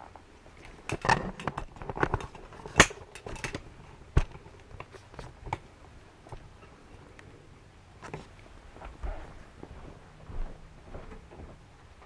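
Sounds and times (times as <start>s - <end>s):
handling knocks and clicks: 0.6s - 5.7s.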